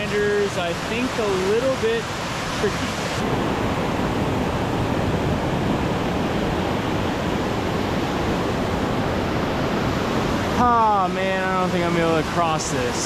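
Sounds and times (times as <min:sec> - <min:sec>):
fast stream rushing: 0:00.0 - 0:13.0.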